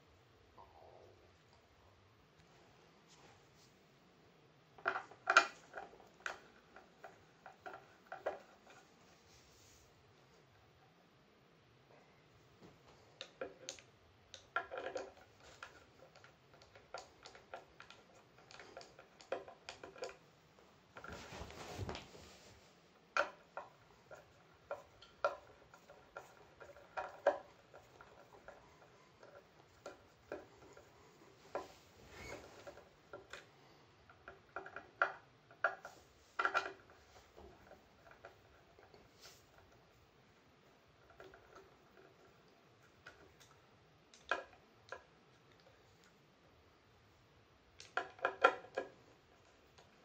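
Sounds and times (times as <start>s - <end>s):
short rustle: 21.0s - 22.8s.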